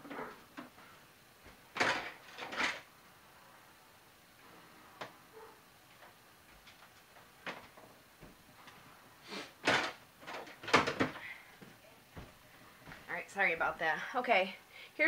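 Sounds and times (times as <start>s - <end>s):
drawer or cupboard clicks and knocks: 9.6s - 11.2s.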